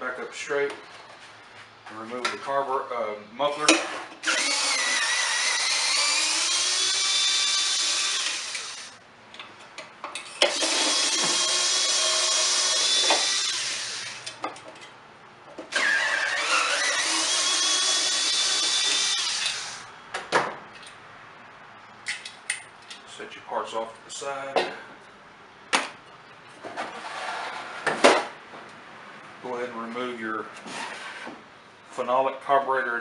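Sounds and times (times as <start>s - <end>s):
cordless drill motor whine: 4.2s - 9.0s, 10.5s - 14.4s, 15.7s - 19.8s
clicks and clatter of parts: 22.0s - 23.1s.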